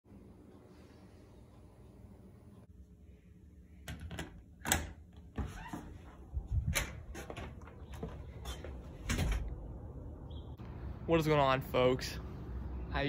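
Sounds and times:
door opening: 3.9 - 8.2, 8.8 - 9.7.

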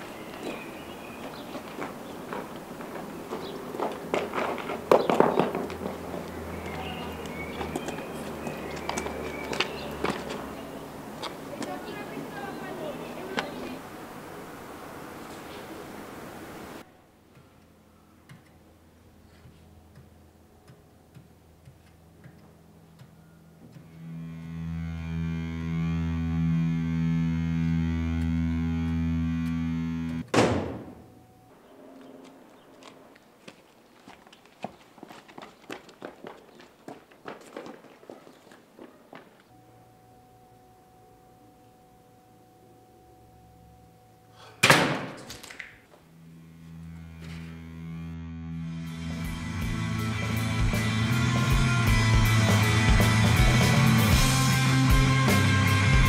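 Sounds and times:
distorted electric guitar music: 23.8 - 30.3, 45.9 - 56.0.

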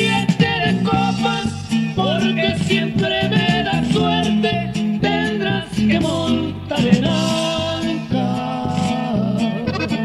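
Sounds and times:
accordion: 0.0 - 10.0
bass: 0.0 - 10.0
guitar: 0.0 - 10.0
steady beat: 8.8 - 10.0.

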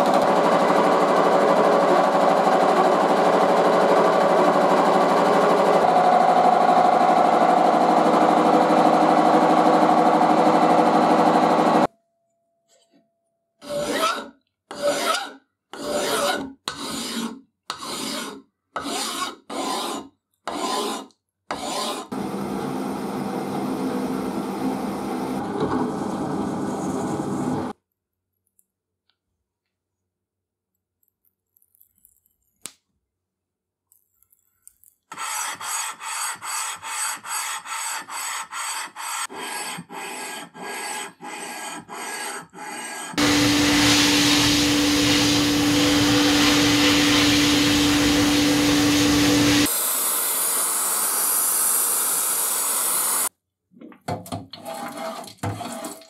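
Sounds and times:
hand file on steel plate: 13.6 - 22.1, 35.1 - 43.2
milling machine cutting steel: 43.2 - 53.3.

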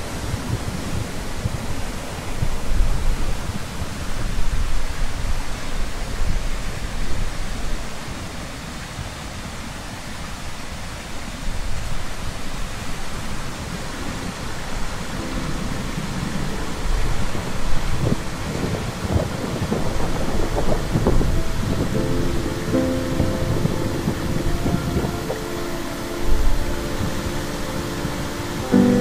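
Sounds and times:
rushing water with deep rumble: 0.0 - 29.0.

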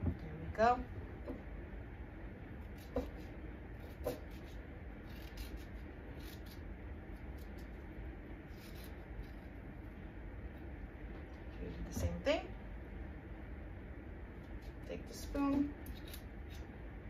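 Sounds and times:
teaspoon scraping cucumber: 2.7 - 7.7, 15.6 - 16.7.

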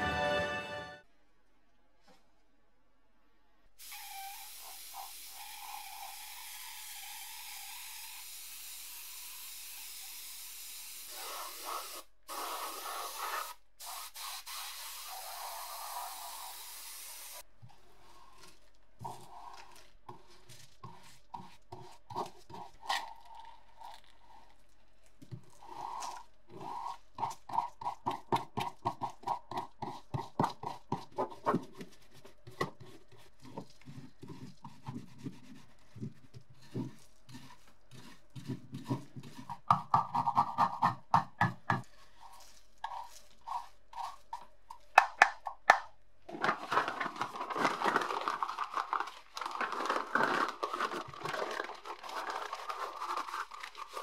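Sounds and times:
spray bottle hissing: 3.8 - 8.8, 10.8 - 17.4
stiff brush scrubbing: 17.7 - 39.6, 41.8 - 44.8, 47.5 - 54.0.

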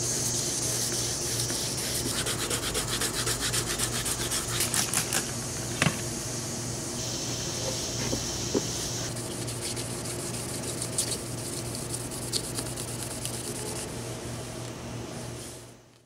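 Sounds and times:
wet sandpaper scrubbing: 0.0 - 5.2, 8.9 - 13.9
steady low hum: 0.0 - 16.0.

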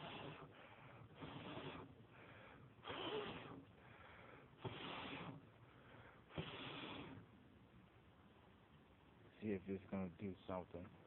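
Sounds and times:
man blowing on fire: 0.0 - 5.6, 6.2 - 7.3.

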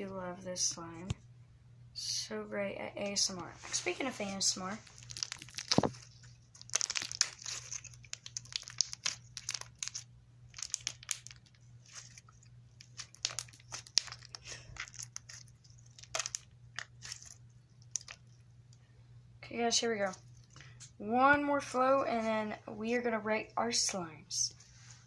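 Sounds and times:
sticky slime clicks and crackles: 4.8 - 11.6, 12.8 - 18.2.

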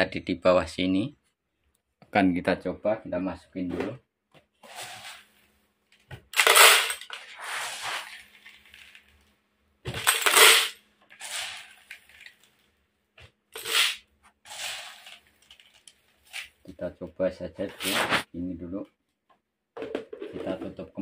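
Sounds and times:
corn kernels pouring into plastic jar: 6.4 - 9.2, 10.0 - 12.4, 13.6 - 16.5.

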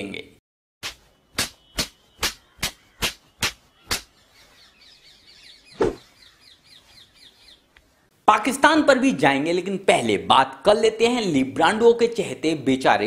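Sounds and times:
sharp smacks: 0.8 - 4.1, 5.8 - 6.0
faint birds chirping: 1.0 - 8.3.

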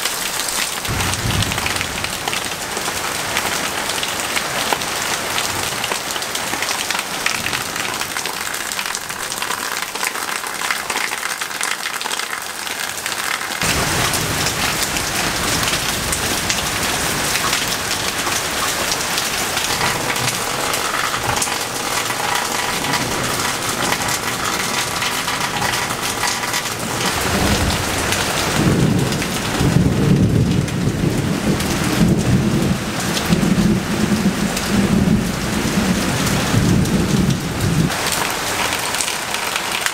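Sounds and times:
heavy rain on leaves and grass: 0.0 - 39.9
low rumble of thunder: 0.9 - 4.1, 13.6 - 37.9.

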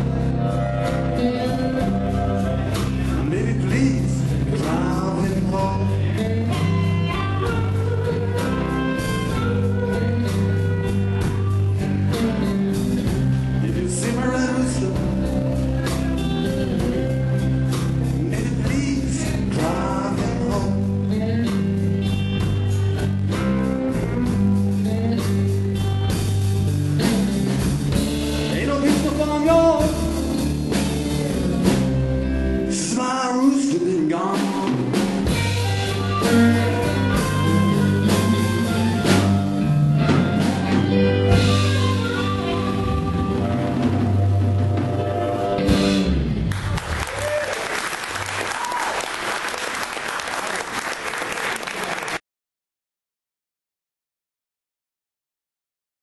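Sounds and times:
blues band playing live: 0.0 - 50.3.

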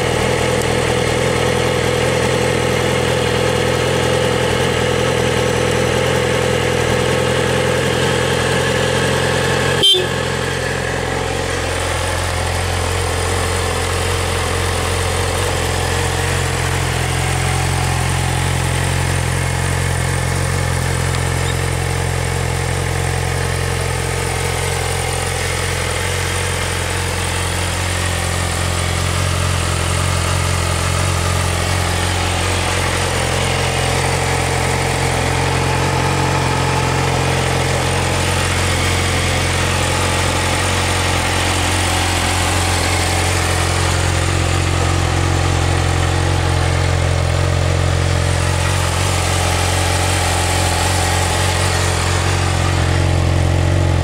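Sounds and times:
motorcycle engine idling: 0.0 - 54.0.

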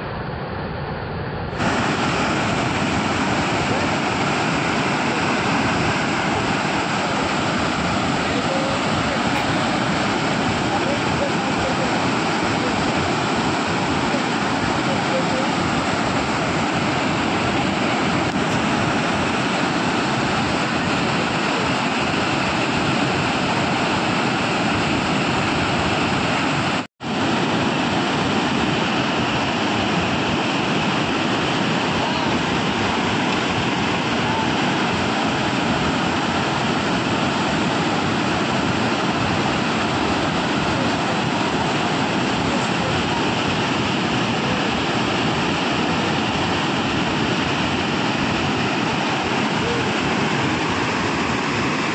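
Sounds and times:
heavy falling water rushing: 1.5 - 51.9.

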